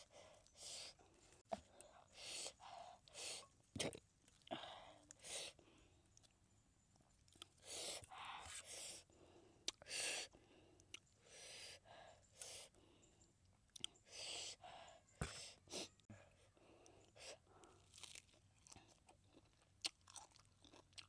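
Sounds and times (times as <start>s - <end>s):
crunchy chewing: 7.0s - 8.0s, 13.7s - 14.0s, 16.8s - 21.0s.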